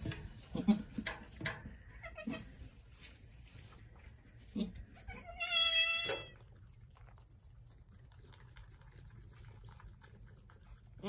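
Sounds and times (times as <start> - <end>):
goat kid bleating: 0.5 - 0.9, 1.8 - 2.6, 4.5 - 6.4.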